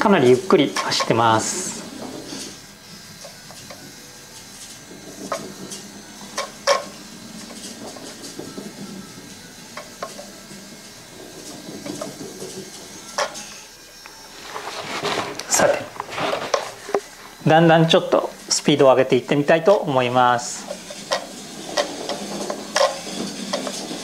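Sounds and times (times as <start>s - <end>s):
toy car electric motor whir: 0.0s - 24.0s
tyre noise on wooden floor: 14.3s - 17.9s.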